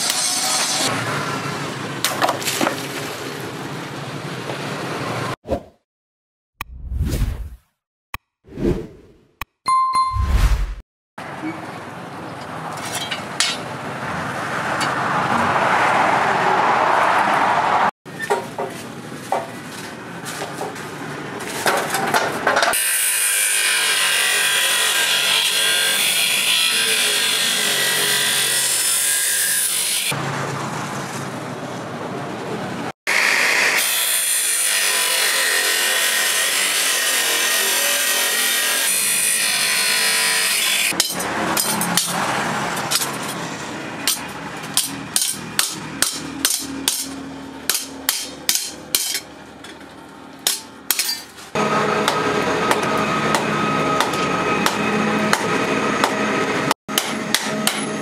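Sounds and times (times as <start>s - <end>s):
cut-off saw grinding steel: 0.0s - 1.0s, 22.7s - 30.2s, 33.1s - 49.3s.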